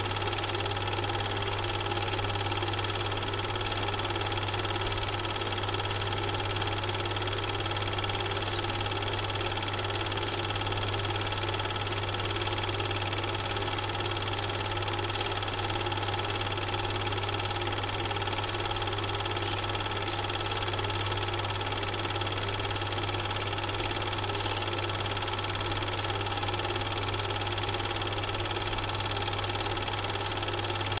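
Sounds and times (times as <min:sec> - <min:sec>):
steady mechanical hum: 0:00.0 - 0:31.0.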